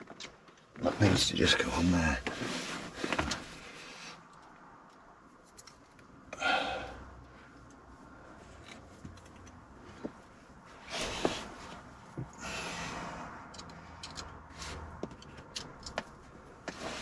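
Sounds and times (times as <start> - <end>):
rustling: 0.0 - 4.3
small clicks and taps: 15.0 - 16.8.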